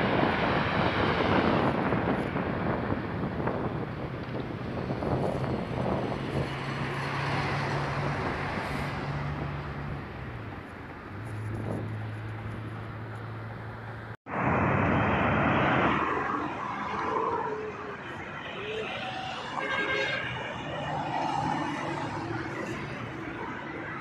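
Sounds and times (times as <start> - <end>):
engine hum: 0.0 - 16.8
motorway traffic rushing: 0.0 - 24.0.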